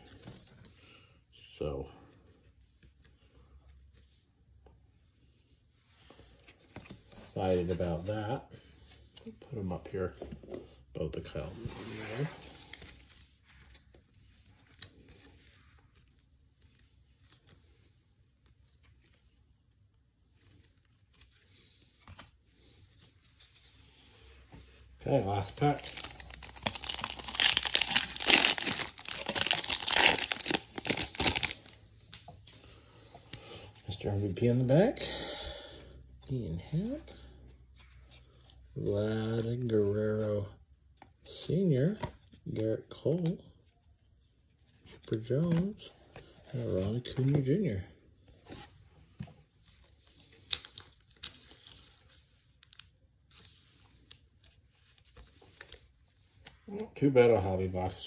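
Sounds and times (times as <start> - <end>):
soft packaging rustling: 2.2 - 34.6, 42.1 - 58.0
card pack wrapper tearing and crinkling: 25.6 - 31.8.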